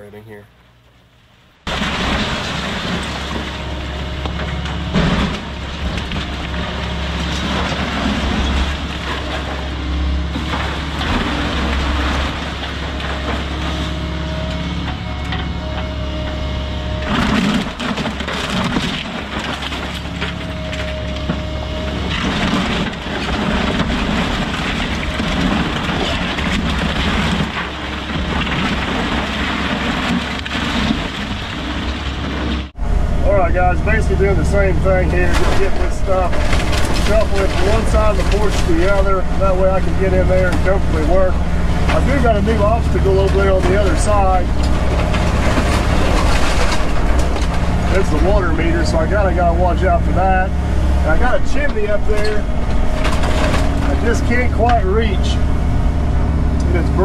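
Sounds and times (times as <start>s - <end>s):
debris crashing down: 1.6s - 16.0s, 16.9s - 57.0s
excavator diesel engine running: 1.7s - 57.0s
timber cracking: 35.1s - 55.9s.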